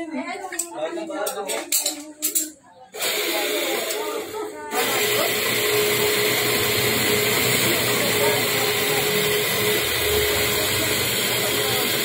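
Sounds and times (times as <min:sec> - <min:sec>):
drill press motor humming: 0:03.0 - 0:12.0.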